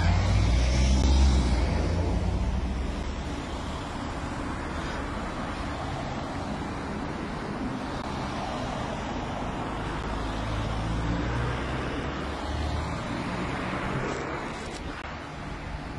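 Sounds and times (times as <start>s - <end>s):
vehicle rumbling by: 0.0s - 3.8s
cars passing: 0.0s - 15.9s.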